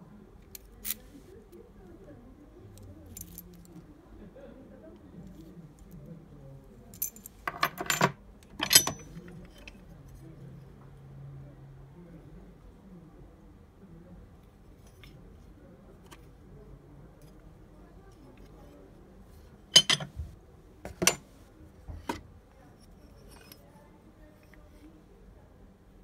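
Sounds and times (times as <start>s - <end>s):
faint handling noise: 6.8s - 10.6s, 14.5s - 25.1s.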